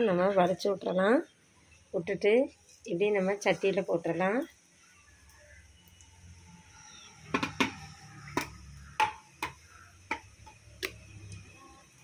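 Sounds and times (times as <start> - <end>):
food sizzling in hot oil: 0.0 - 12.0
spattering oil pops: 7.2 - 11.4.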